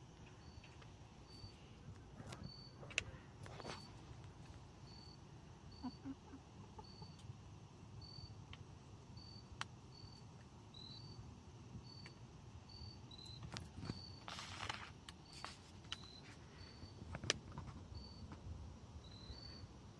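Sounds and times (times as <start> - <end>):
crickets chirping: 0.0 - 19.9
chickens clucking softly: 5.7 - 7.4.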